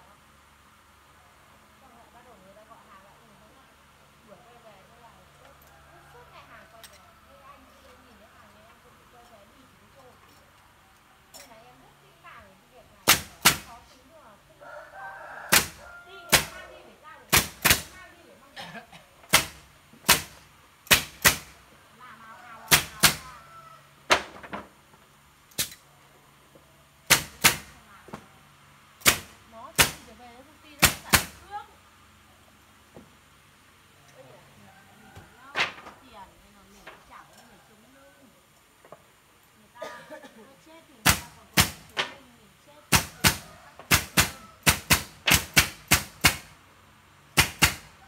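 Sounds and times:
nail gun shots: 13.0s - 13.7s, 15.5s - 16.6s, 17.3s - 18.0s, 19.3s - 21.6s, 22.7s - 23.2s, 25.5s - 25.8s, 27.0s - 27.8s, 29.0s - 30.1s, 30.8s - 31.4s, 41.0s - 42.2s, 42.9s - 46.6s, 47.4s - 47.9s.

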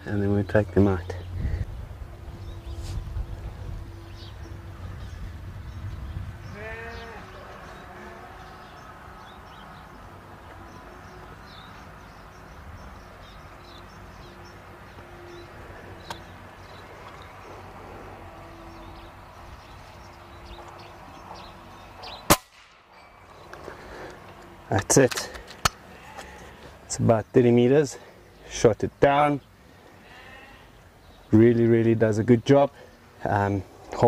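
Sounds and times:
faint outdoor background: 0.0s - 34.0s
air rifle shot: 22.3s - 22.8s.

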